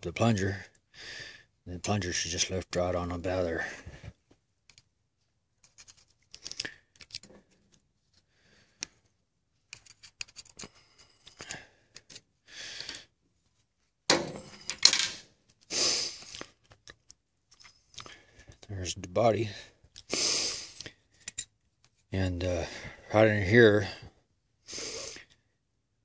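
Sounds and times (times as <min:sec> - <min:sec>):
small metal parts clinking: 0:14.4 - 0:15.2.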